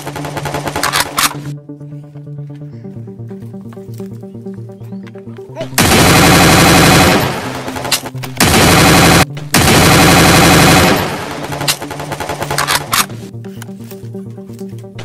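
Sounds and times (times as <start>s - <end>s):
rapid automatic gunfire: 0.0s - 1.2s, 5.8s - 13.0s.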